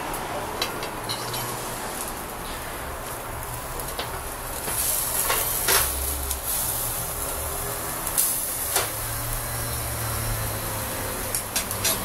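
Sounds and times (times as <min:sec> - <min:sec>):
meat sizzling on a grill: 0:00.2 - 0:12.0.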